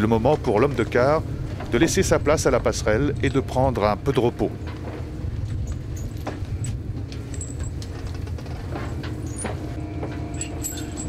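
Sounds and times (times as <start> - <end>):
diesel engine rumbling: 0.0 - 11.0
light clicks and clinks: 10.1 - 11.0.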